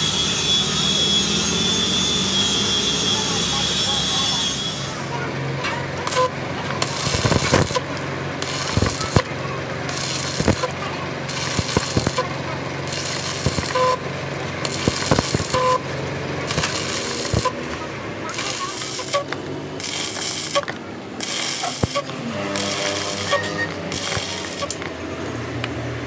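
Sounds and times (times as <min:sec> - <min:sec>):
welder low hum: 0:00.0 - 0:26.0
welding arc crackling and popping: 0:06.0 - 0:25.0.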